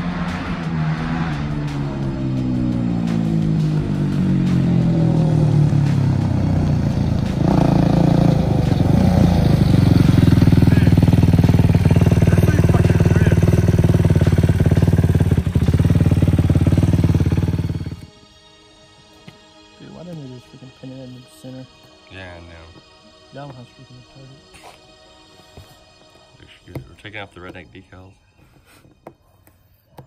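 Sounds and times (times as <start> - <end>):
quad engine running and idling: 4.8 - 18.1.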